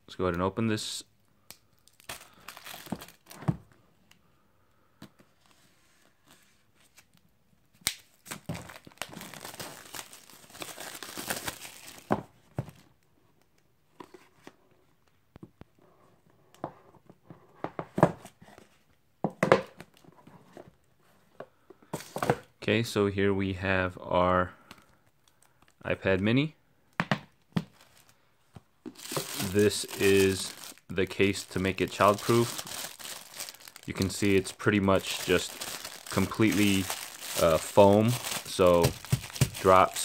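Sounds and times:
plastic wrap crinkling and tearing: 0:01.8 - 0:03.4, 0:07.9 - 0:12.1, 0:27.6 - 0:28.2, 0:28.9 - 0:40.0.

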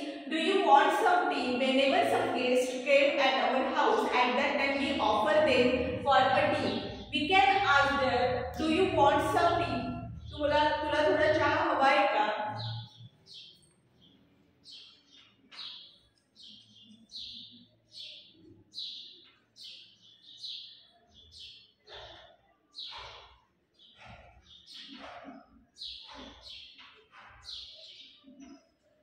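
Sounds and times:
marker pen squeaking on whiteboard: 0:21.8 - 0:29.0.

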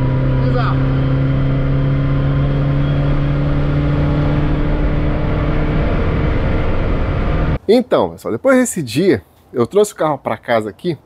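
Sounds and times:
car engine droning: 0:00.0 - 0:07.6
road noise: 0:00.0 - 0:07.6.

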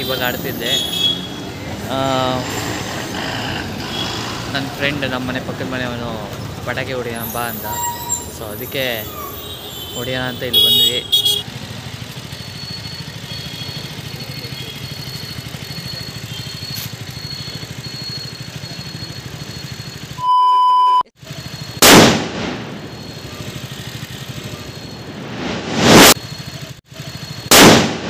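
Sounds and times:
short beep: 0:12.4 - 0:21.7
firecracker bangs: 0:21.8 - 0:23.0, 0:27.5 - 0:28.0.

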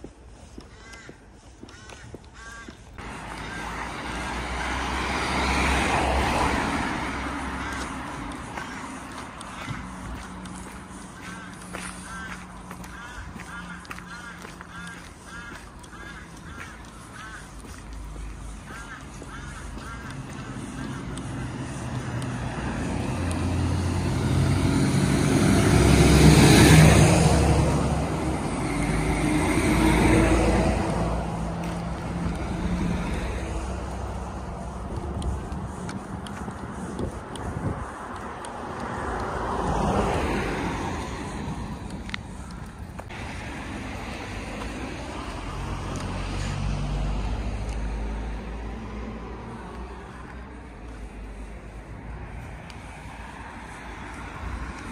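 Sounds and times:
outdoor road noise: 0:00.0 - 0:54.9
lorry diesel engine: 0:03.0 - 0:54.9.

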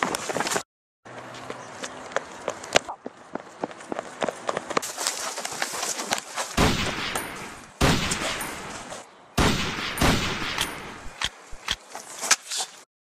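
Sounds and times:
pistol shots echoing: 0:06.6 - 0:08.7, 0:09.4 - 0:11.2.

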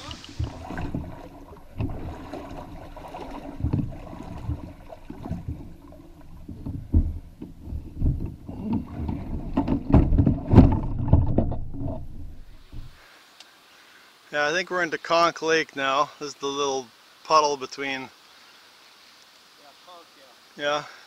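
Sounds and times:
canoe hull thumps and knocks: 0:00.2 - 0:13.0.

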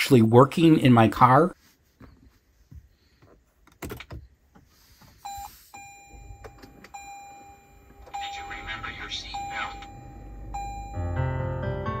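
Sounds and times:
car electronic chime beeps: 0:05.2 - 0:11.8.

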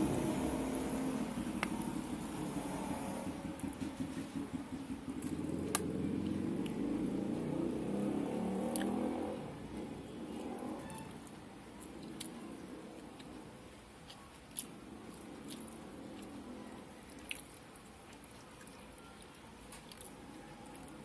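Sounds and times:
low engine-like rumble: 0:00.0 - 0:21.0
chewing and lip smacks: 0:08.6 - 0:09.0, 0:10.4 - 0:12.4, 0:14.0 - 0:16.4, 0:17.0 - 0:21.0.

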